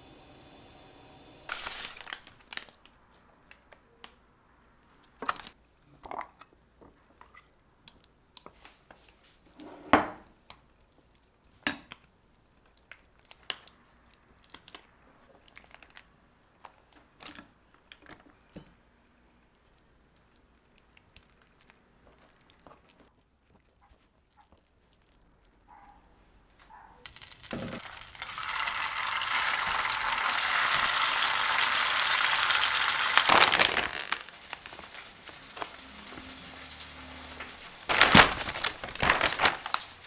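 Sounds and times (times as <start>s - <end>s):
soft crinkling and squishing: 1.5s - 9.6s, 10.3s - 27.8s, 33.1s - 36.8s, 37.4s - 40.0s
rustling: 32.8s - 40.0s.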